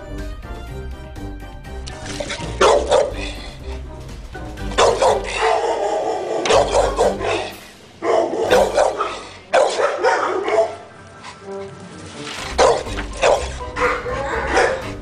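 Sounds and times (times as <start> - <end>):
background music: 0.0 - 15.0
dog barking: 2.2 - 3.5, 4.7 - 10.9, 12.5 - 15.0.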